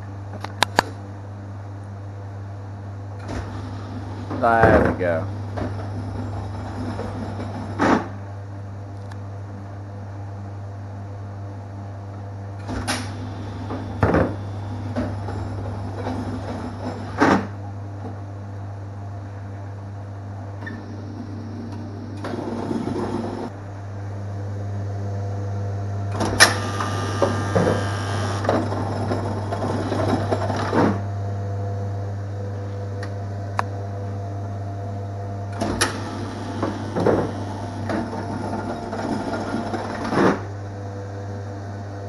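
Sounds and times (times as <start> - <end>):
pinsetter machine humming: 3.2 - 7.8, 12.6 - 17.2, 20.7 - 23.6, 26.1 - 31.0, 35.5 - 40.1.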